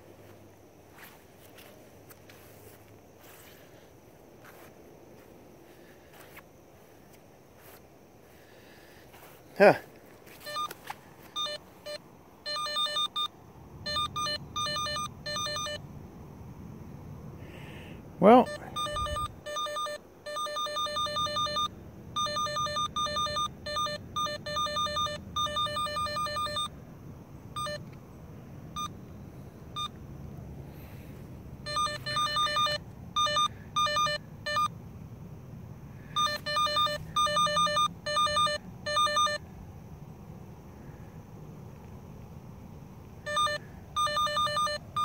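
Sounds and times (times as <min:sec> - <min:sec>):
high electronic beeping: 0:11.4 - 0:13.3, 0:13.9 - 0:15.8, 0:18.4 - 0:26.7, 0:31.7 - 0:34.7, 0:36.2 - 0:39.4, 0:43.3 - 0:45.0.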